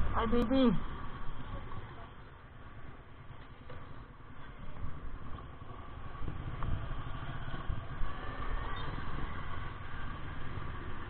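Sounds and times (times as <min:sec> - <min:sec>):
scooter engine running: 0:00.0 - 0:11.0
wind rumble on microphone: 0:03.8 - 0:11.0.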